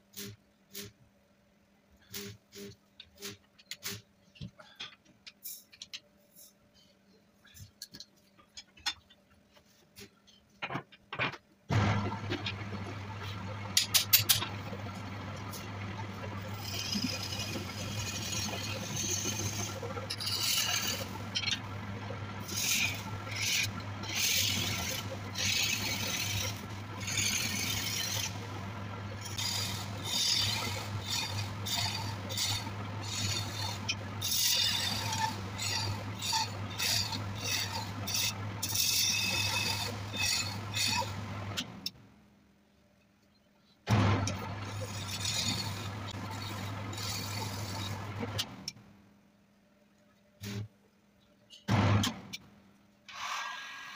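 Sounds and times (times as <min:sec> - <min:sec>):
electric motor hum: 0:11.7 - 0:41.6
hand tool scraping turning wood: 0:14.1 - 0:41.6, 0:44.2 - 0:48.6.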